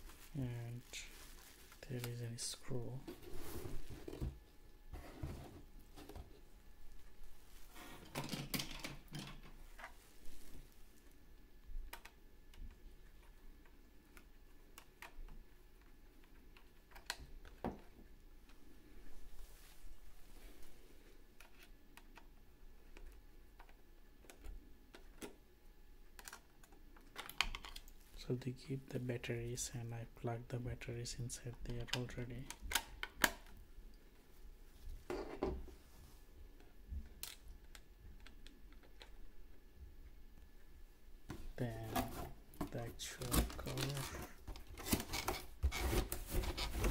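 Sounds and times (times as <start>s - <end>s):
plastic and cardboard scrape: 43.2s - 46.9s.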